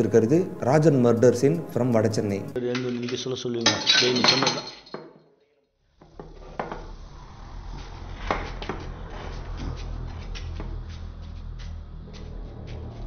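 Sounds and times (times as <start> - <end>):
metal dishes clinking: 2.7 - 5.1.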